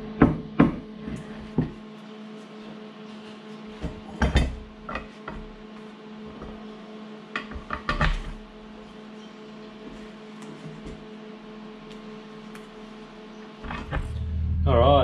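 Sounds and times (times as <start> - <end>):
steady low hum: 0.0 - 15.0
parts clicking and knocking: 7.4 - 8.4, 13.6 - 14.2.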